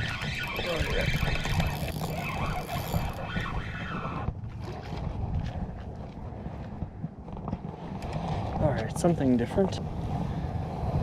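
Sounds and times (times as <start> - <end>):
fishing reel whirring: 0.0 - 4.3
wind buffeting microphone: 0.0 - 11.0.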